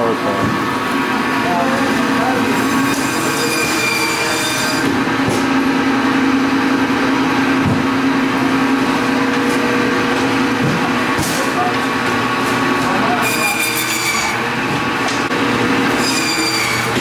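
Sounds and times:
band saw humming: 0:00.0 - 0:17.0
saw cutting through bone: 0:02.4 - 0:05.4, 0:13.2 - 0:14.4, 0:15.8 - 0:17.0.

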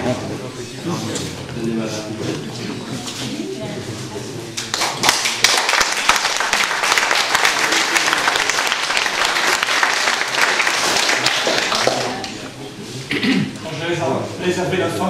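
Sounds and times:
people clapping: 0:04.6 - 0:12.6.

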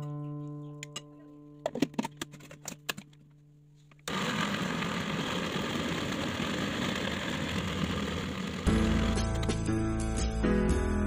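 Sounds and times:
electric food chopper running: 0:04.1 - 0:09.6.

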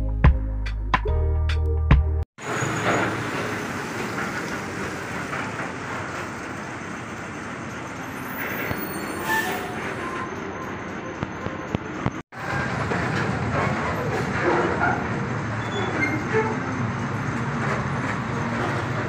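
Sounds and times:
high squeaks: 0:08.1 - 0:12.0.

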